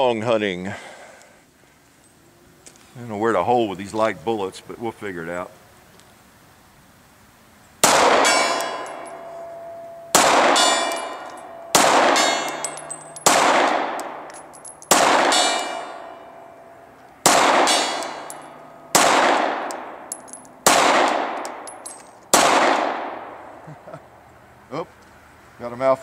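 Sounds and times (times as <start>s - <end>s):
pistol shots: 7.8s - 9.2s, 10.1s - 14.3s, 14.9s - 16.1s, 17.2s - 20.0s, 20.6s - 23.4s
steel gong ringing: 8.2s - 12.4s.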